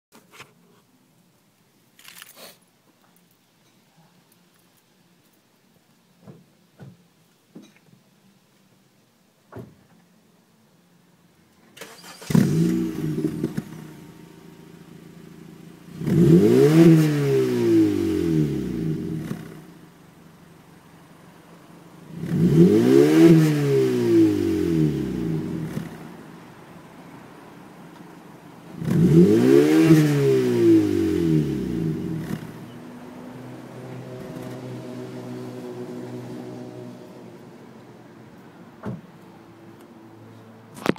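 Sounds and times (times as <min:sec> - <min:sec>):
car engine idling and revving: 0:11.8 - 0:38.6
car exhaust note: 0:21.9 - 0:26.3
brief thump: 0:38.8 - 0:39.1.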